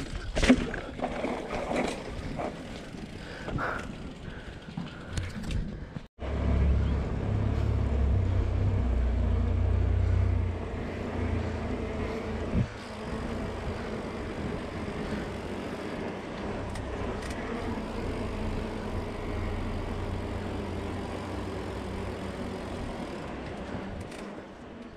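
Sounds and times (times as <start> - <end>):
bike tyres rolling on pavers: 0.0 - 24.9
wind rush on microphone: 12.1 - 15.8.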